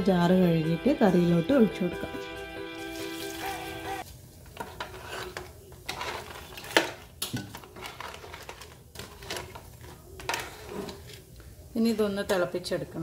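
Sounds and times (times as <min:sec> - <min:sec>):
metal spoon stirring in a pot: 0:04.5 - 0:12.5.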